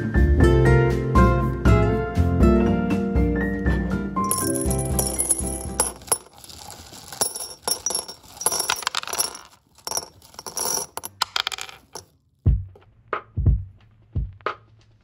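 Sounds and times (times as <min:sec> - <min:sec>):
gems clinking into glass mug: 0:04.2 - 0:12.1.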